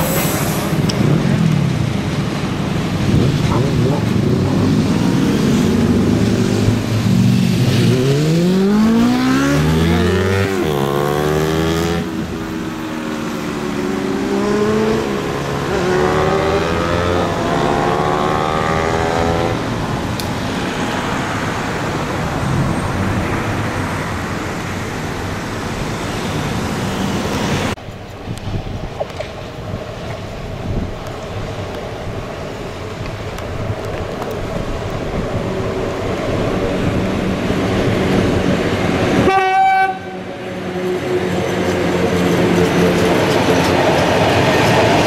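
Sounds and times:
train rumble: 0:00.0 - 0:08.3, 0:19.6 - 0:45.0.

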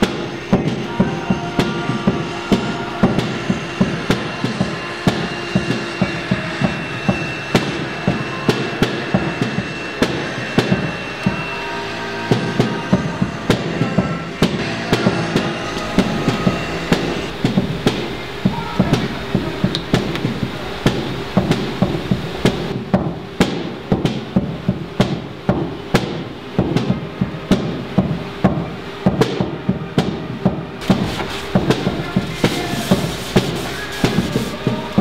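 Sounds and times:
drum kit beat: 0:00.0 - 0:11.5, 0:12.3 - 0:35.0.

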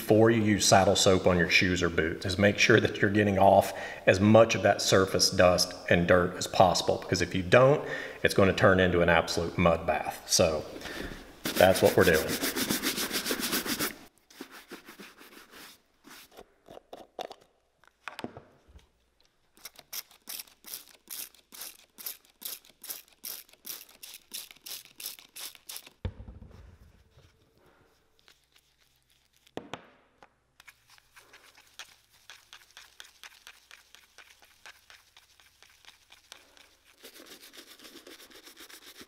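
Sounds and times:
brush swirling wet soap: 0:11.4 - 0:16.4, 0:27.0 - 0:29.6, 0:30.6 - 0:39.0
shoe brush scrubbing leather boot: 0:11.4 - 0:16.4, 0:30.6 - 0:39.0
spray bottle spritzing: 0:19.6 - 0:26.0, 0:30.6 - 0:38.9.

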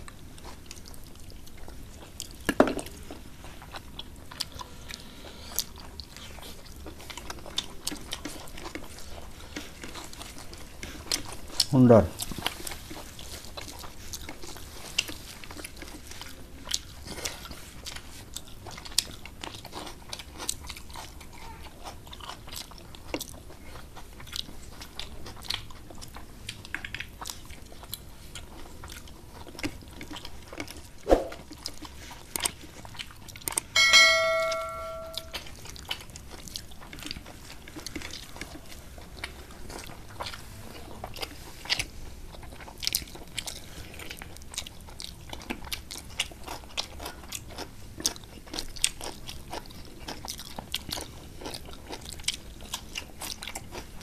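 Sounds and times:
chewing and lip smacks: 0:00.0 - 0:33.8, 0:35.2 - 0:54.0
bell-like ringing clink: 0:33.8 - 0:35.4.

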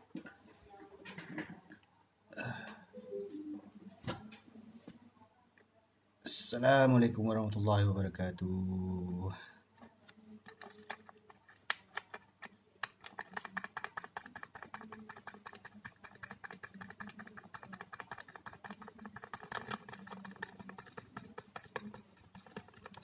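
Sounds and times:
fingers tapping on touchscreen: 0:10.1 - 0:23.0.

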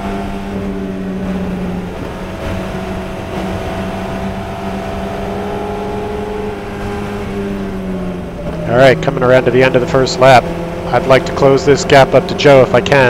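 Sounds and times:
race car engine at high revs: 0:00.0 - 0:13.0
wind and road rush: 0:00.0 - 0:13.0.

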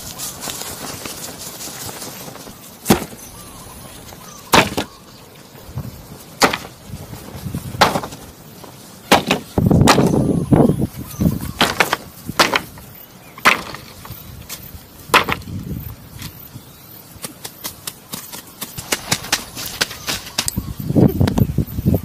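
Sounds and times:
axe chopping wood: 0:02.8 - 0:03.2, 0:04.5 - 0:04.9, 0:06.4 - 0:06.7, 0:07.8 - 0:08.2, 0:09.1 - 0:10.2, 0:11.6 - 0:12.7, 0:13.4 - 0:13.9, 0:15.1 - 0:15.4.

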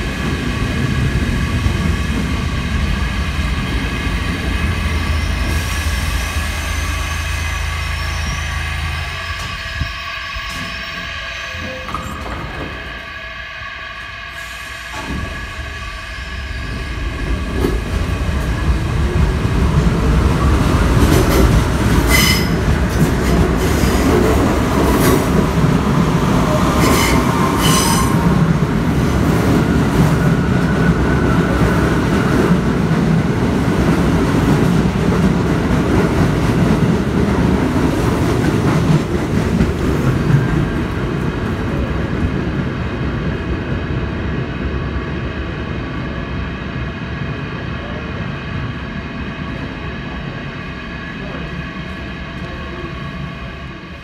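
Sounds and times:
subway train rumbling past: 0:00.0 - 0:54.0
high-pitched wheel squeals: 0:05.0 - 0:12.3, 0:22.1 - 0:22.6, 0:26.8 - 0:28.2.

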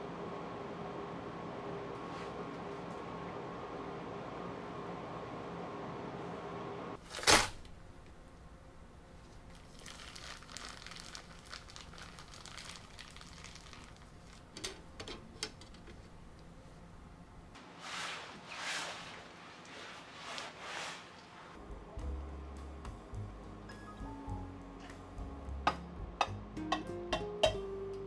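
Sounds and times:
baking paper crinkling and tearing: 0:09.5 - 0:14.5.

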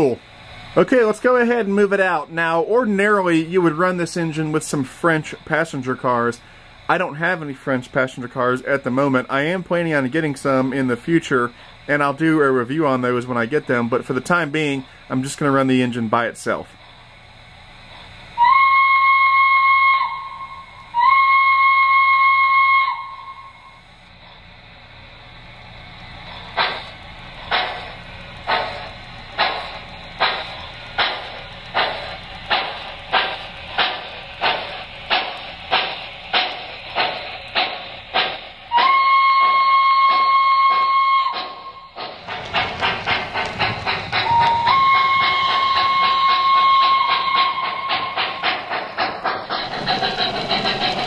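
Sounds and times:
faint steady hum: 0:00.0 - 0:42.0
steam locomotive chuffing: 0:00.0 - 0:51.0
shrill steam whistle: 0:18.3 - 0:24.0, 0:38.7 - 0:42.2, 0:44.1 - 0:48.6
wheel rumble on track: 0:23.8 - 0:51.0.

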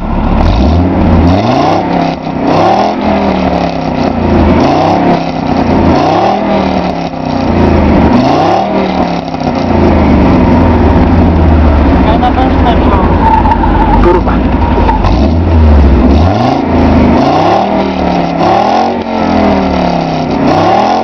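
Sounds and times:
car engine revving and idling: 0:00.0 - 0:21.0.

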